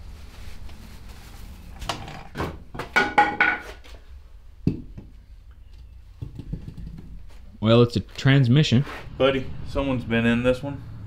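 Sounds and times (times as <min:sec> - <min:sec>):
plastic bag rustling: 0:00.0 - 0:02.0.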